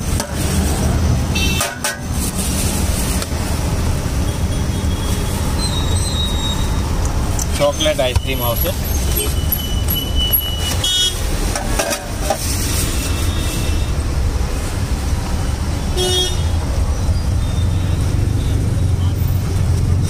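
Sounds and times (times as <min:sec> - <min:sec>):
street traffic rumble: 0:00.0 - 0:20.0
vehicle horn honks: 0:10.7 - 0:11.2, 0:16.0 - 0:16.5.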